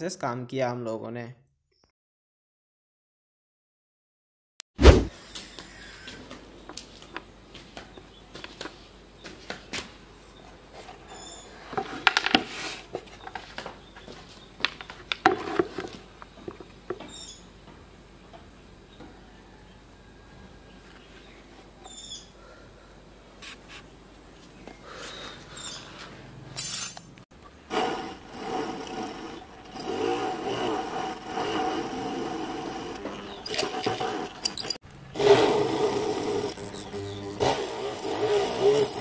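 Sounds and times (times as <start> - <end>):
small drill whining through board: 27.7 - 39.0.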